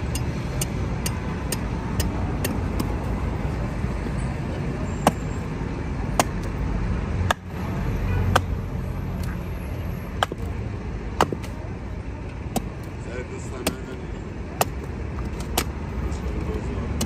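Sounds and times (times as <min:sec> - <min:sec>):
hatchet chopping wood: 0:00.0 - 0:03.2, 0:05.0 - 0:05.3, 0:06.0 - 0:06.6, 0:07.2 - 0:07.6, 0:08.3 - 0:08.6, 0:10.2 - 0:10.5, 0:11.1 - 0:11.6, 0:12.4 - 0:15.8, 0:16.8 - 0:17.0
street traffic rumble: 0:00.0 - 0:17.0.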